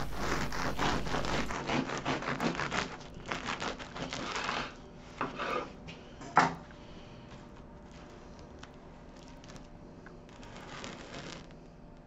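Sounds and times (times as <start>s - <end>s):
bread crust crackling: 0.0s - 4.8s, 7.5s - 11.8s
knife sawing through bread crust: 0.0s - 5.8s, 10.3s - 11.5s.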